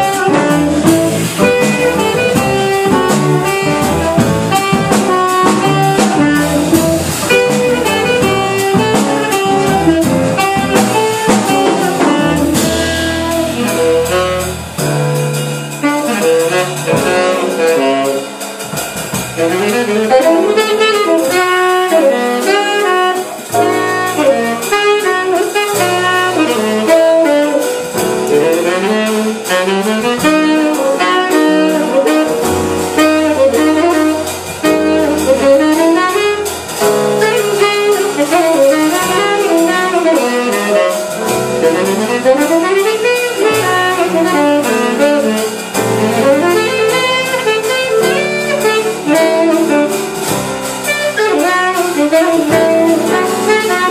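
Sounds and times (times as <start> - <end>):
guitar: 0.0 - 13.2
drum kit: 0.0 - 53.9
piano: 0.0 - 53.9
saxophone melody: 0.0 - 53.9
upright bass: 0.0 - 53.9.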